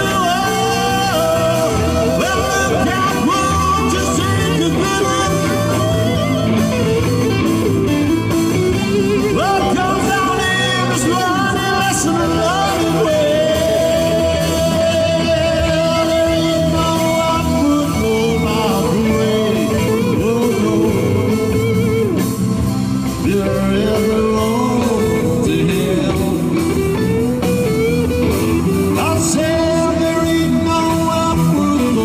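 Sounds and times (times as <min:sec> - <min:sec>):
bass guitar: 0:00.0 - 0:32.0
drums: 0:00.0 - 0:32.0
electric guitar lead: 0:00.0 - 0:32.0
keyboards: 0:00.0 - 0:32.0.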